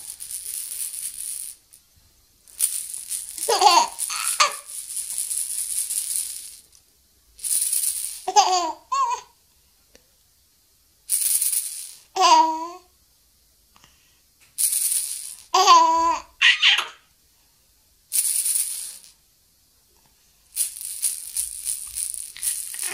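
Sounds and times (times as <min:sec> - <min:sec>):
bead rattle shaking: 0:00.0 - 0:01.9, 0:02.5 - 0:06.8, 0:07.4 - 0:08.8, 0:11.1 - 0:12.1, 0:14.5 - 0:16.8, 0:18.1 - 0:19.2, 0:20.5 - 0:22.9
baby laughing squeals: 0:03.4 - 0:04.7, 0:08.3 - 0:09.3, 0:15.6 - 0:17.0.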